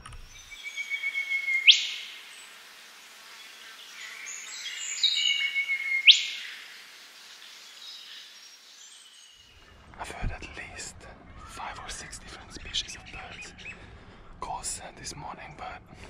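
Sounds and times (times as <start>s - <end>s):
bird singing whistled notes: 0.2s - 2.5s, 3.6s - 6.7s.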